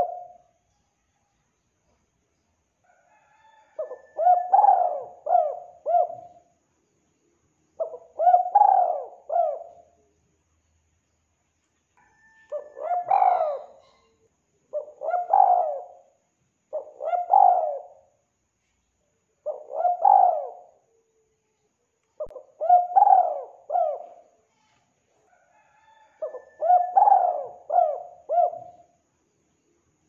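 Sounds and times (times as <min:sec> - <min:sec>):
dove cooing: 0:00.0 - 0:00.4, 0:03.8 - 0:06.5, 0:07.8 - 0:10.0, 0:12.5 - 0:14.1, 0:14.7 - 0:16.1, 0:16.7 - 0:18.1, 0:19.4 - 0:20.9, 0:22.2 - 0:24.3, 0:25.8 - 0:29.0.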